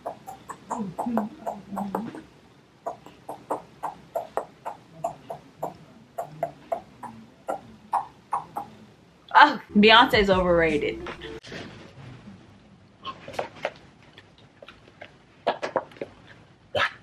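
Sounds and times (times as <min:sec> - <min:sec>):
beatboxing lip pops and clicks: 0:02.8 - 0:05.5.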